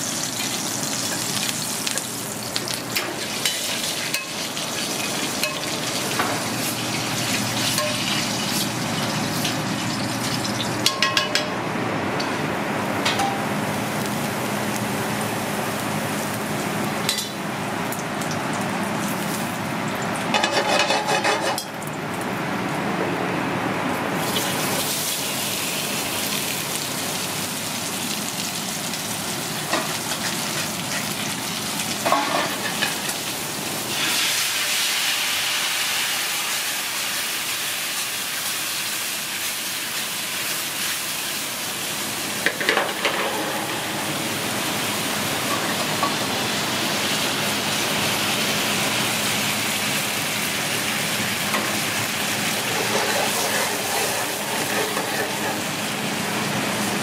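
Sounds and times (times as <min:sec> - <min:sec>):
mushrooms sizzling in pan: 0:00.0 - 0:10.9, 0:24.2 - 0:57.0.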